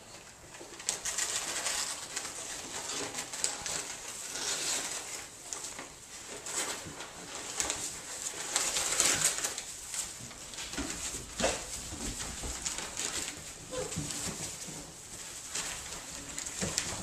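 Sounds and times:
shredded paper rustling: 0.0 - 17.0
puppy crying: 13.7 - 14.0.

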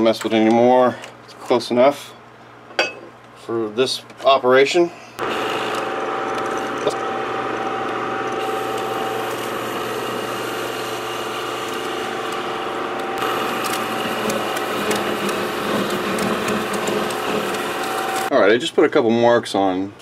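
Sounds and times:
metal lathe whining: 5.2 - 18.3.

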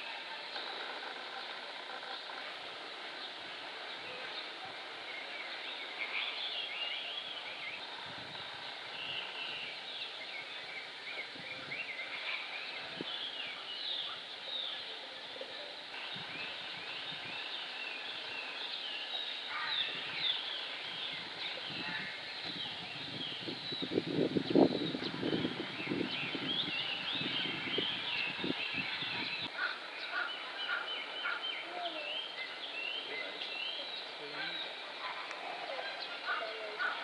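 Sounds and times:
small birds chirping: 0.0 - 37.0.

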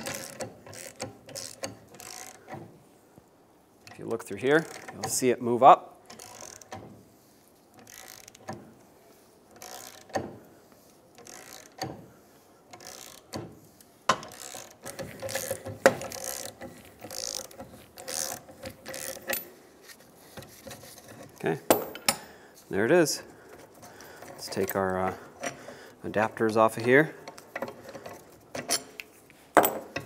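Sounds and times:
ratchet wrench clicking: 0.0 - 2.5, 4.6 - 5.2, 6.1 - 6.8, 7.7 - 8.6, 9.6 - 10.2, 11.2 - 11.9, 12.7 - 13.4, 14.1 - 19.5.

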